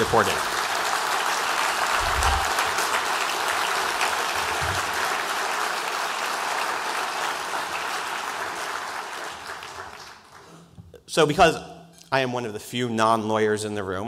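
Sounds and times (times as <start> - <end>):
audience applauding: 0.0 - 10.7
low thumps: 1.9 - 2.9.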